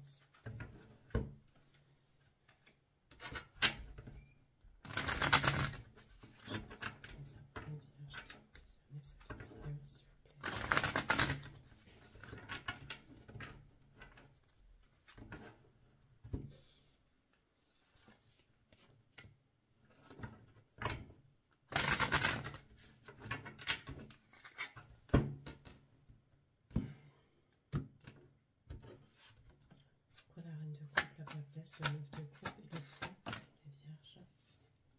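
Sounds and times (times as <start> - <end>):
cards riffling: 4.9 - 5.9, 10.4 - 11.5, 21.7 - 22.6.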